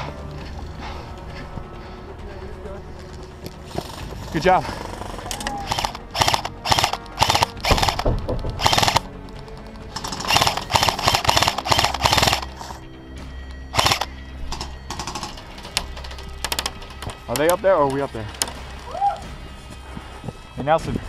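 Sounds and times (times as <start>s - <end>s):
steady music-like tones: 0.0s - 21.0s
airsoft rifle firing bursts: 5.7s - 9.1s, 10.0s - 12.6s, 13.8s - 14.1s.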